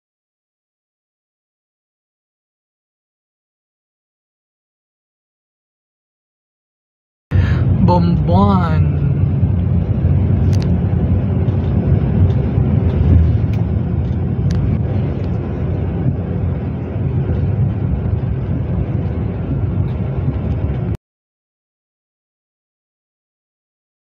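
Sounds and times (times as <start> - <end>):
car interior road rumble: 7.3 - 21.0.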